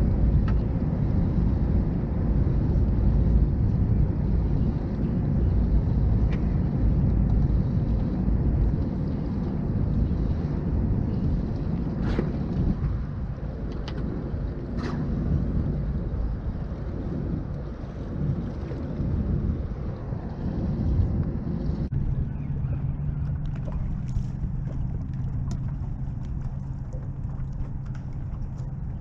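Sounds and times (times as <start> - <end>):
light knocks and clicks on boat: 0.0 - 1.3, 6.1 - 10.4, 11.2 - 16.6, 22.5 - 29.0
wind buffeting microphone: 0.0 - 29.0.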